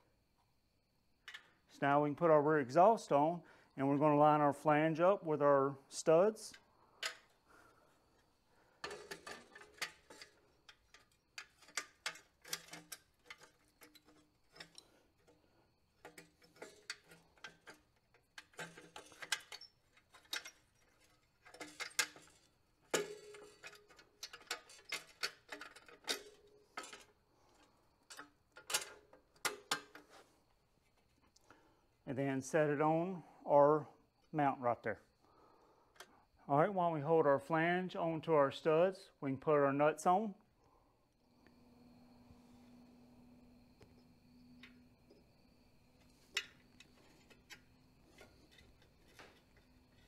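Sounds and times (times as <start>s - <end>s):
metal clicks and clinks: 6.5s - 7.4s, 8.8s - 15.4s, 16.0s - 30.1s.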